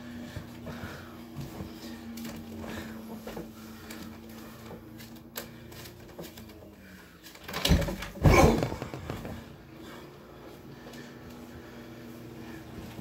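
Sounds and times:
heavy thuds on mattress: 7.6 - 9.8.

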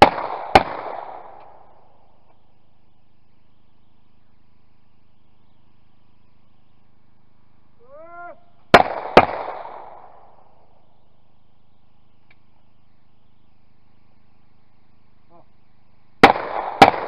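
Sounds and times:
shotgun shots: 0.0 - 1.9, 8.7 - 10.6, 16.2 - 17.0
person shouting: 7.8 - 8.5.

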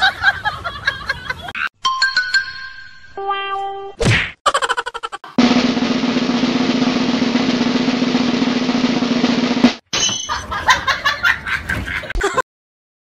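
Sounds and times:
snare drum roll: 5.4 - 9.8.

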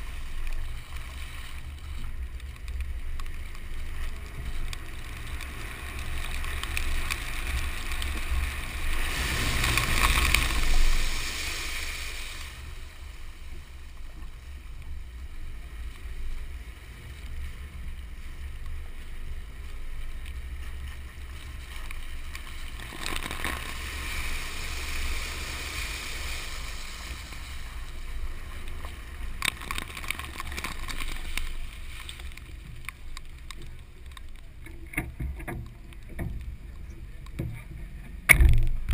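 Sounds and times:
road and wind rumble: 0.0 - 38.9
tyres hissing on wet road: 3.5 - 14.9, 20.3 - 32.8.

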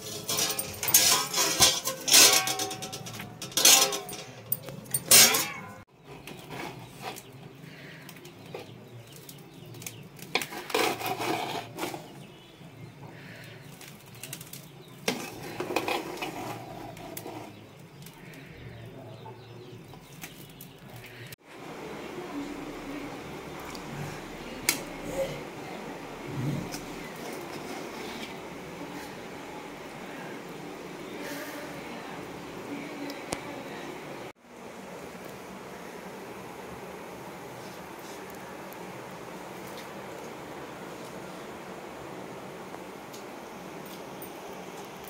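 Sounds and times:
metal ladle scraping a pot: 0.0 - 8.8, 10.3 - 12.3, 15.0 - 18.5, 26.3 - 29.2.

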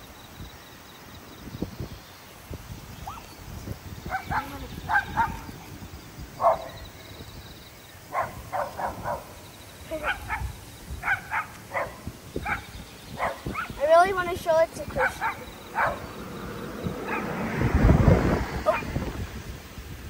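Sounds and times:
dog barking: 4.1 - 5.5, 6.4 - 6.8, 8.1 - 9.4, 10.0 - 13.8, 14.9 - 16.2, 17.0 - 17.4, 18.6 - 18.9.

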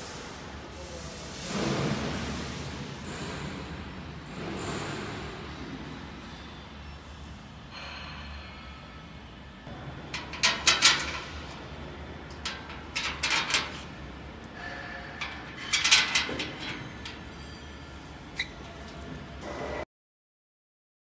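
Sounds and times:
metal parts clattering: 10.1 - 11.6, 12.3 - 13.9, 14.5 - 17.7.

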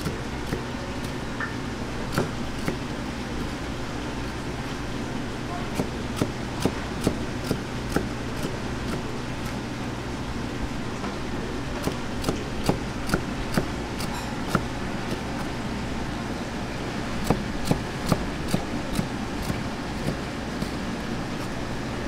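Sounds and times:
knife chopping on cutting board: 2.1 - 2.8, 5.7 - 9.1, 11.8 - 15.5, 17.2 - 20.8.

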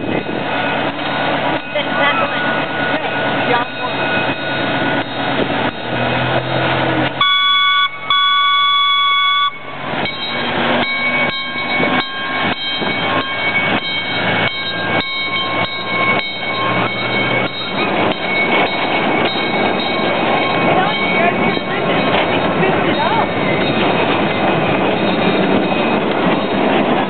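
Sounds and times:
train clanking: 0.0 - 27.0
train engine running: 0.0 - 27.0
train horn toots: 7.2 - 9.9.

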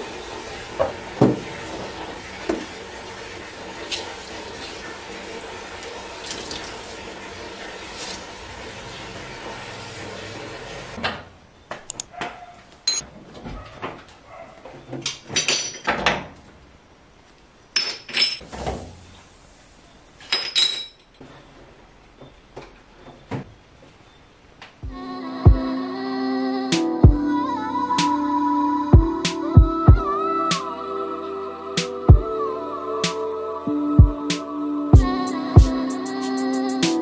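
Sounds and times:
tap water running into sink: 0.7 - 10.5.

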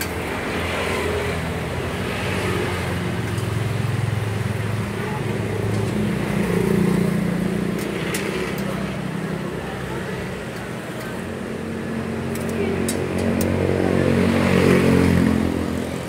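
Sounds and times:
street traffic noise: 0.0 - 16.0.

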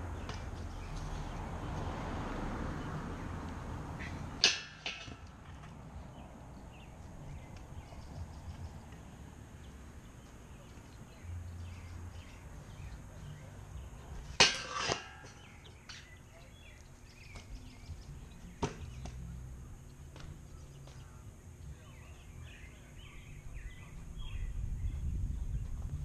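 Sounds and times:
scooter wheels rumbling on concrete: 0.0 - 21.4
scooter clanging on metal rail: 4.4 - 5.8, 14.1 - 16.2.

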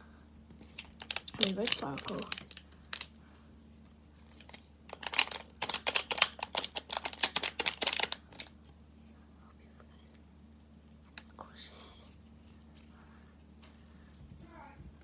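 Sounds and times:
plastic sachet crinkling: 0.6 - 3.2, 4.3 - 8.5.

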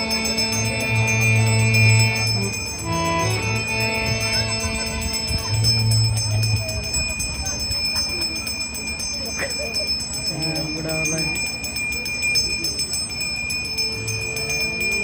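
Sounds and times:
harmonium chords: 0.0 - 7.0
high bell-like ringing: 0.0 - 15.0.

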